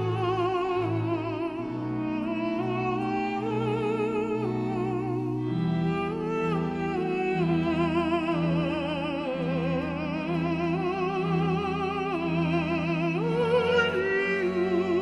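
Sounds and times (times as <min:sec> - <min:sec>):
classical accompaniment: 0:00.0 - 0:15.0.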